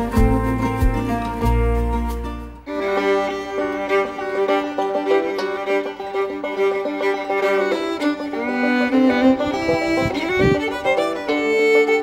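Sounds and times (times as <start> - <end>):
instrumental music: 0.0 - 12.0.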